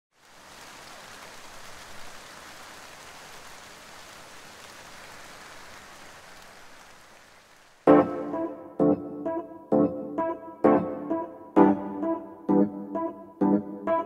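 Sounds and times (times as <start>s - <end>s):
steady rain falling: 0.1s - 7.9s.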